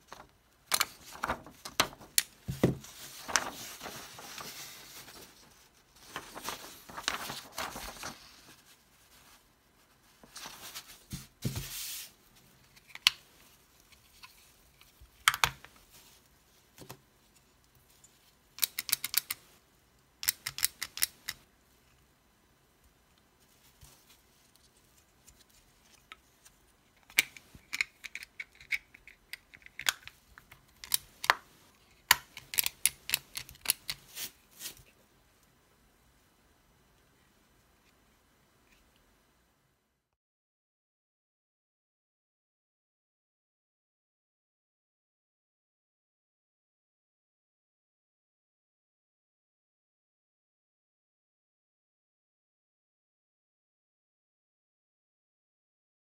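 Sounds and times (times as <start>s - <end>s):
paper rustling and sliding: 0.0s - 9.4s, 10.0s - 12.5s, 33.6s - 34.9s.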